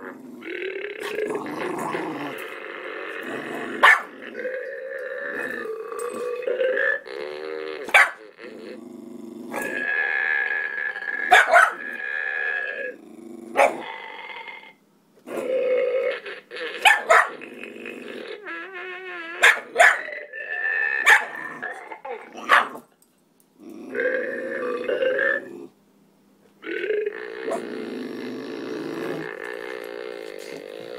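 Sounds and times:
dog growling and whining: 0.0s - 22.9s, 23.6s - 25.8s, 26.7s - 30.9s
dog barking: 3.8s - 4.1s, 7.9s - 8.2s, 11.3s - 11.8s, 13.6s - 13.8s, 16.8s - 17.4s, 19.4s - 20.0s, 21.0s - 21.4s, 22.4s - 22.8s.

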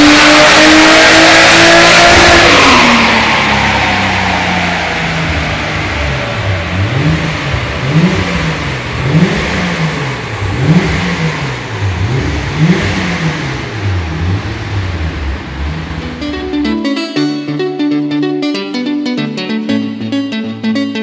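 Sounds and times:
car engine revving: 0.0s - 16.7s.

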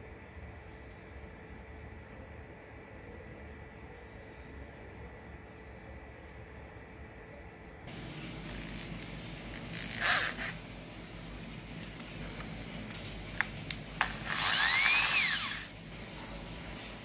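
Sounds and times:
electric drill motor running: 9.7s - 10.6s, 14.0s - 15.7s.

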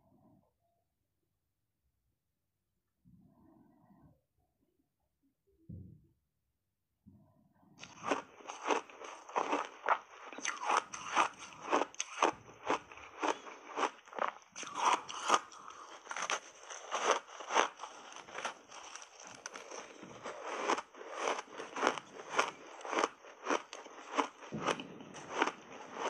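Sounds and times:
crunching and chewing ice bar: 7.8s - 26.0s.

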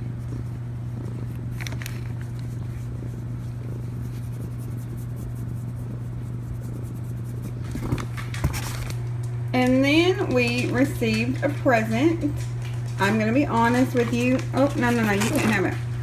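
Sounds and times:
fingers rubbing fur: 0.0s - 8.9s
low background hum: 0.0s - 16.0s.

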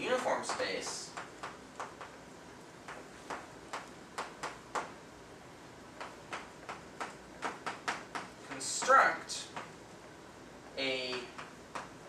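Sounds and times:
chalk tapping on blackboard: 0.4s - 2.2s, 2.8s - 5.0s, 6.0s - 9.8s, 11.0s - 12.0s.

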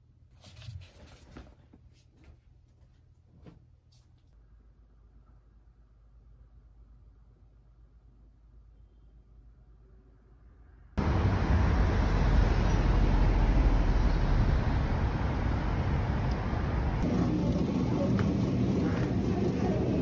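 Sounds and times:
indoor supermarket background: 0.0s - 11.0s, 17.0s - 20.0s
city street traffic: 11.0s - 20.0s.

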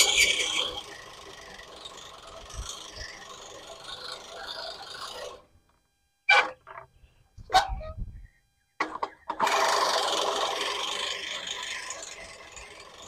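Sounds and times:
reel mower cutting grass: 0.0s - 5.5s, 9.3s - 13.0s.

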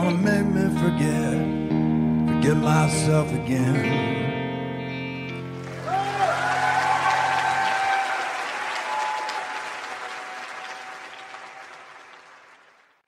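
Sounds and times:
guitar chord ringing: 1.1s - 5.7s
audience applauding and cheering: 5.5s - 13.0s.

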